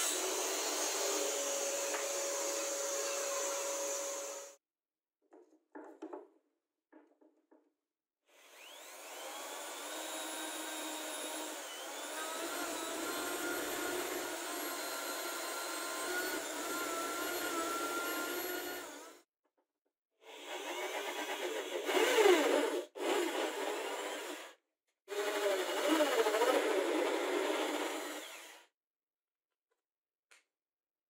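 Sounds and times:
electric drill drilling into plywood: 0.0 - 4.6, 8.4 - 19.2, 20.3 - 28.7.

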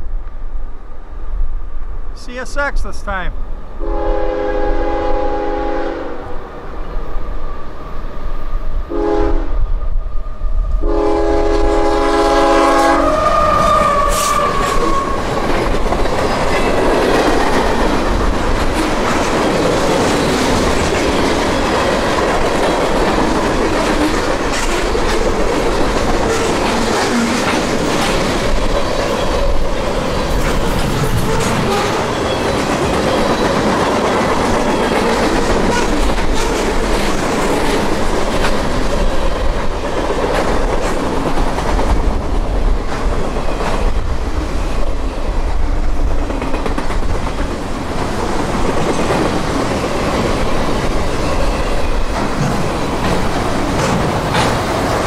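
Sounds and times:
train air horn: 3.8 - 6.3, 8.9 - 9.6, 10.8 - 15.2
train wheel squeal: 13.0 - 15.5, 31.2 - 33.8
train wheels clattering over rail joints: 13.6 - 44.0, 46.1 - 55.0.

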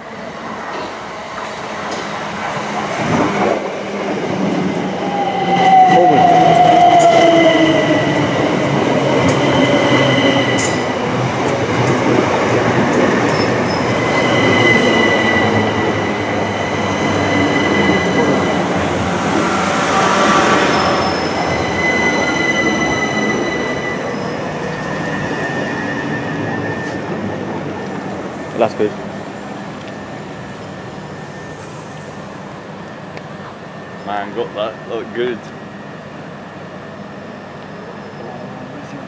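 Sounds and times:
train wheels rushing on rails: 0.0 - 39.0
high squeal of wheels: 13.3 - 15.7, 20.6 - 27.2.

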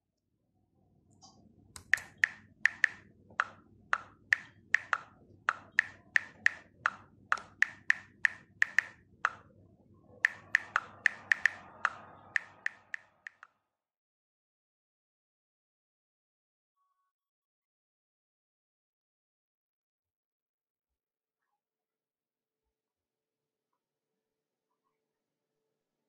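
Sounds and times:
sharp ringing taps: 1.8 - 9.4, 10.3 - 13.0.

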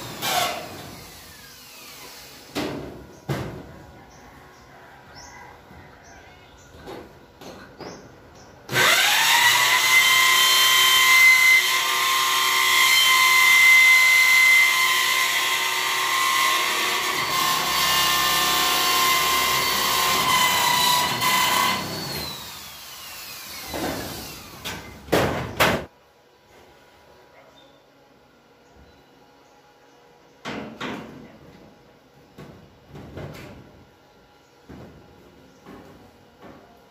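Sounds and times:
power drill drilling into steel: 8.7 - 24.6.

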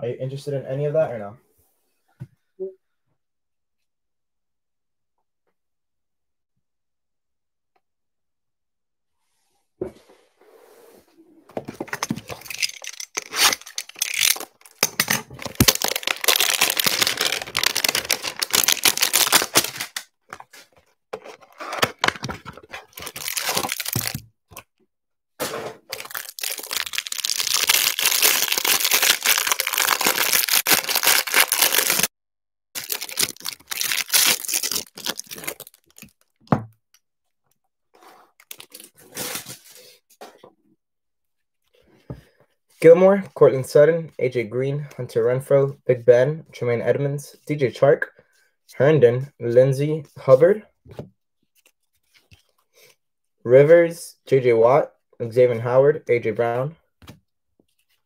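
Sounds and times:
plastic wrap crinkling: 12.0 - 20.1, 22.5 - 24.2, 25.9 - 32.1, 32.8 - 36.4
cardboard box tearing: 15.4 - 20.0.

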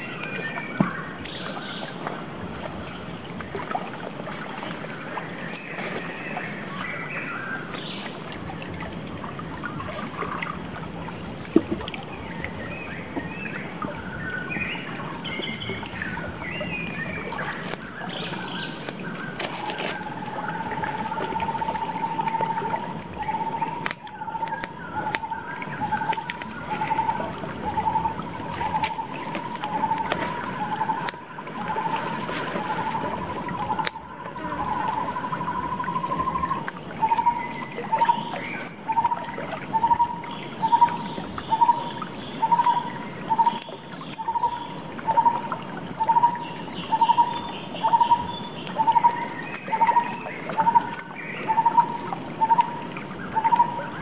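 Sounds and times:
stream trickling: 0.0 - 54.0
birds chirping: 11.1 - 54.0.

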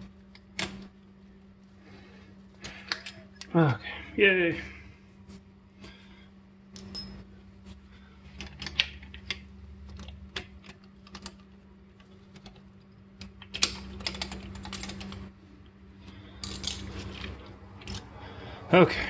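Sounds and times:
metallic clicks of small parts: 2.6 - 3.6, 8.4 - 15.3.

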